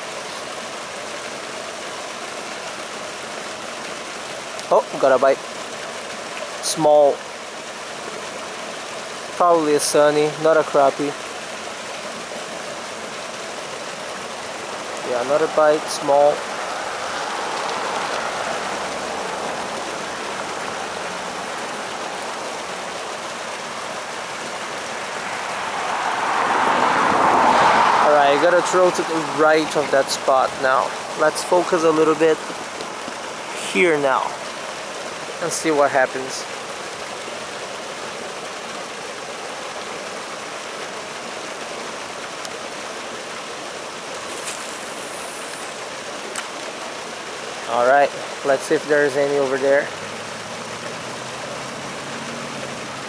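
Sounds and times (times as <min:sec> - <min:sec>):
outdoor background hiss: 0:00.0 - 0:53.0
car approaching: 0:14.6 - 0:31.2, 0:49.6 - 0:53.0
brief higher hiss: 0:44.2 - 0:45.8.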